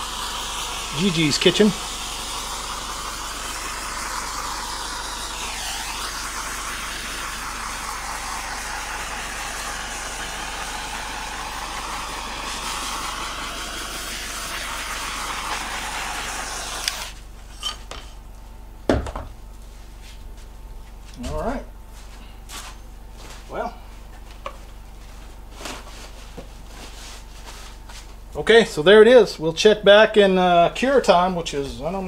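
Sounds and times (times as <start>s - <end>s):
torch flame hissing: 0.0s - 17.7s.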